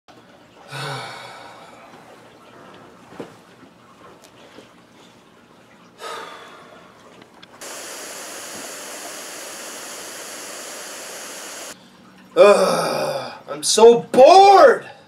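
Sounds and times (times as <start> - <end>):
rain hissing: 7.6 - 11.8.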